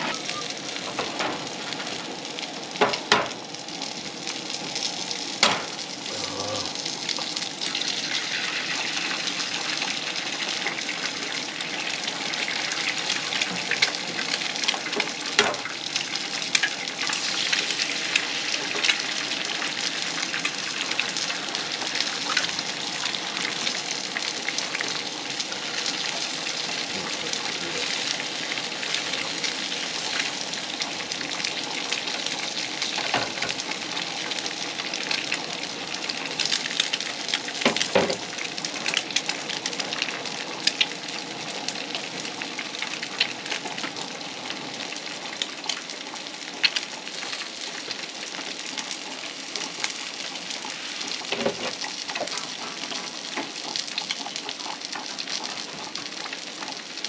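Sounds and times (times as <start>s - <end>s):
food sizzling in oil: 0.0s - 57.0s.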